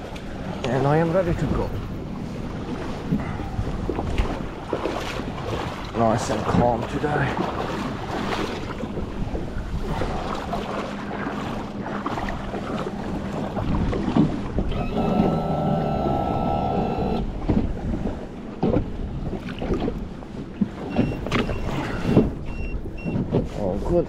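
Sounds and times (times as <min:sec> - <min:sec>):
wind buffeting microphone: 0:00.0 - 0:15.3, 0:16.0 - 0:24.0
knocks and bumps on boat: 0:00.0 - 0:24.0
steady tone with overtones: 0:14.8 - 0:17.3.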